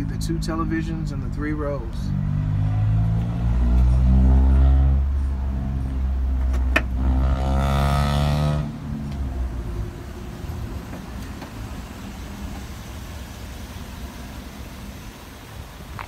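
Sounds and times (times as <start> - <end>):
car engine idling: 8.8 - 16.0.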